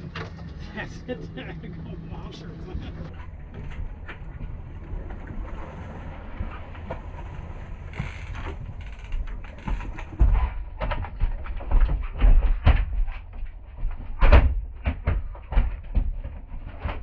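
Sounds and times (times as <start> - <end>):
water splashing: 0.0 - 10.4
knocks and thumps: 8.0 - 17.0.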